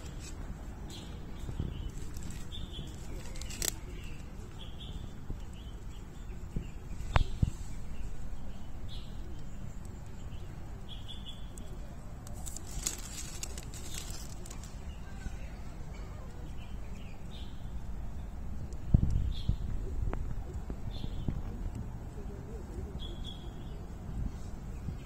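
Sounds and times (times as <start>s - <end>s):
rustling net and dry leaves: 0.0s - 4.9s, 11.9s - 16.5s.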